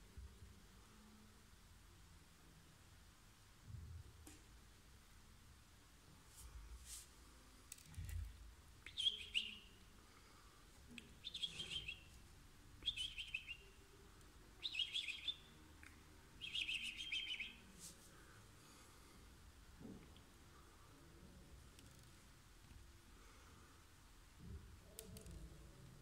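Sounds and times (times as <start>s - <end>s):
cockatiel chirping: 8.9s - 9.7s, 11.2s - 12.1s, 12.8s - 13.7s, 14.6s - 15.5s, 16.4s - 17.7s.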